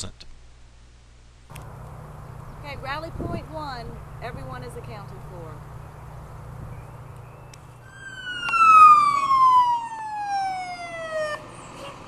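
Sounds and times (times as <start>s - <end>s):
fire engine siren: 7.8s - 12.0s.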